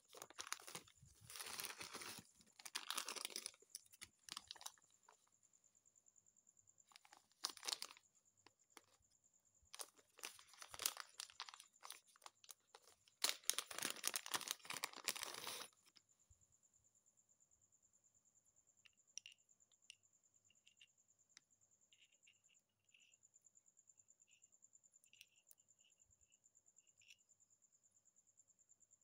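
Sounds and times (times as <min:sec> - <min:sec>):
plastic packaging crinkling: 0:00.0 - 0:04.8, 0:06.9 - 0:08.0, 0:09.8 - 0:15.8.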